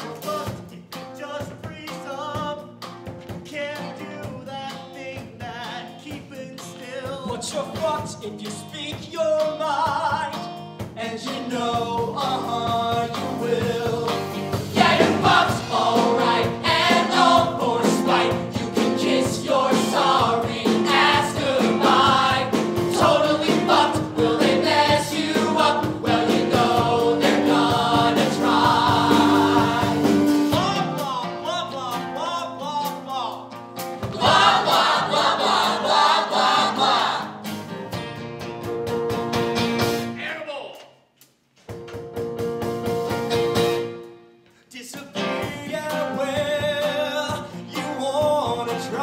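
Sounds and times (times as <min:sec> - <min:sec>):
live rock band: 0:00.0 - 0:40.2, 0:41.7 - 0:44.3, 0:45.0 - 0:49.0
group singing rock song: 0:10.9 - 0:30.7, 0:34.0 - 0:37.4.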